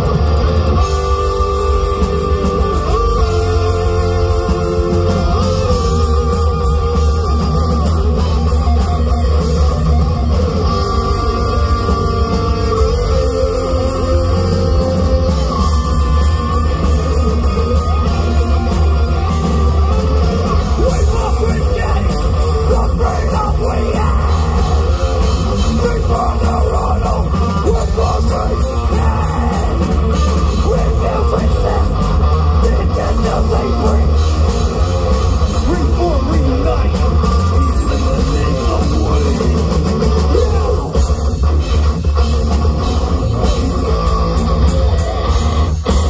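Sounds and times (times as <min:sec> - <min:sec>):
live heavy rock band: 0:00.0 - 0:46.0
vocals: 0:20.5 - 0:41.8.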